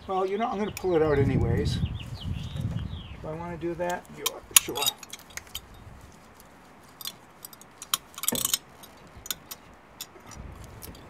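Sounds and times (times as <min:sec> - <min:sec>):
metallic clicks and clinks: 0:03.9 - 0:05.8, 0:07.0 - 0:11.0.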